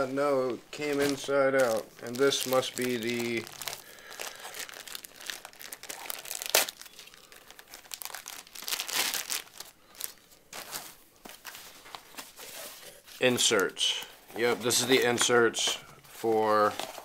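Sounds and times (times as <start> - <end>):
plastic bag crinkling: 0.5 - 12.6
sharp crackle: 1.0 - 10.3.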